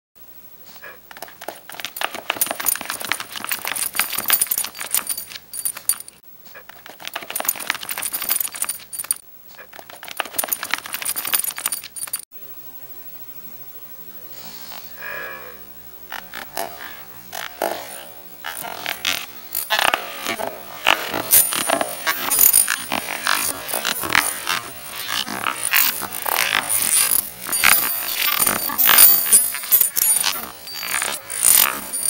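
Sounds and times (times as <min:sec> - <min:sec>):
light metallic jingle: 0:01.3 - 0:06.2, 0:06.8 - 0:09.2, 0:09.8 - 0:12.3, 0:18.5 - 0:32.0.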